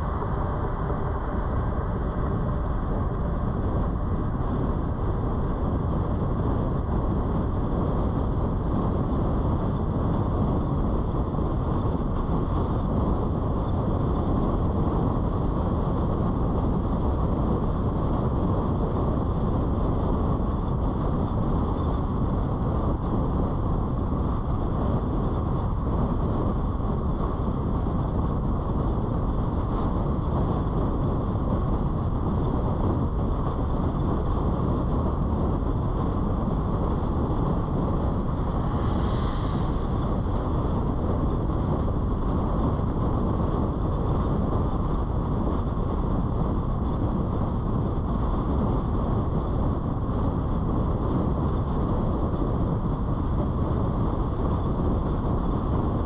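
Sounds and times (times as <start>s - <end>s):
wind rushing past: 33.2s - 44.4s.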